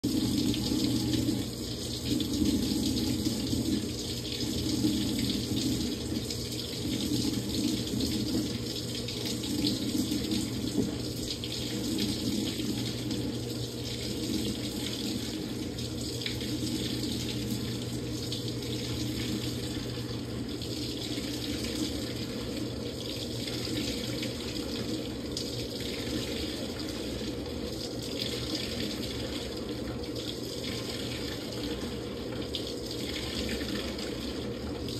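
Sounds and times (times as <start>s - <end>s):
washing machine hum: 0.0s - 34.9s
water rushing into tub: 0.0s - 34.9s.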